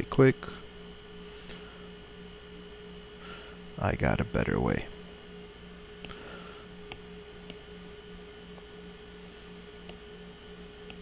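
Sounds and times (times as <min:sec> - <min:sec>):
faint pulsing buzz: 0:00.0 - 0:11.0
low electrical hum: 0:00.0 - 0:11.0
stylus tapping on tablet screen: 0:06.8 - 0:07.6.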